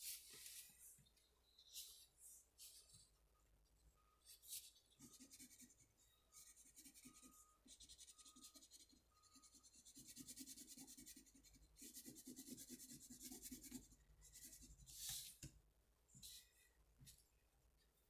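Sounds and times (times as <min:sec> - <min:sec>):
crayon scratching on paper: 0:04.4 - 0:05.8, 0:06.4 - 0:14.7.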